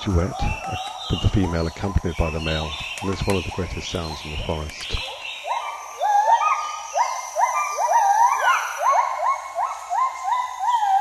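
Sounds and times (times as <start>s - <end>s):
gibbons whooping calls: 0.0s - 11.0s.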